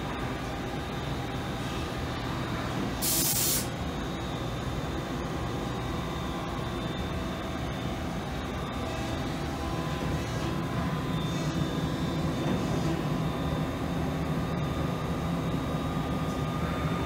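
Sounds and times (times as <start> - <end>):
machine mechanical hum: 0.0 - 17.0
coolant spraying: 3.0 - 3.7
loud hiss: 3.0 - 3.7.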